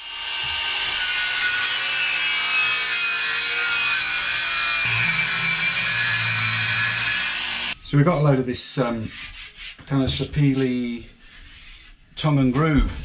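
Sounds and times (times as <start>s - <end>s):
power tool whining cutting wood: 0.0s - 7.8s.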